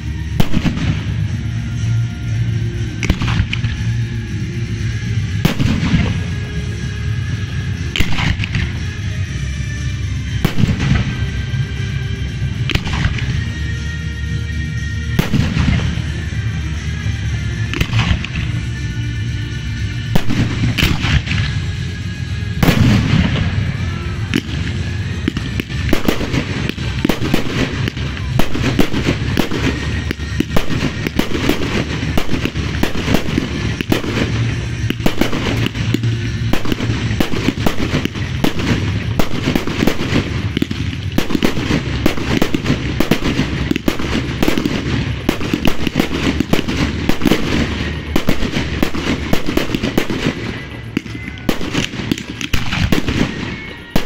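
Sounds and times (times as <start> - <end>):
fireworks bursting: 0.0 - 54.0
fireworks crackling: 0.0 - 54.0.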